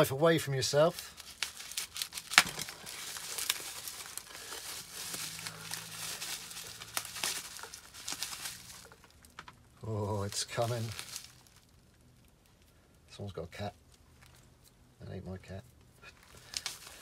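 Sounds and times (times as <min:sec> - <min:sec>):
bubble wrap crinkling: 0:00.8 - 0:12.8, 0:16.1 - 0:17.0.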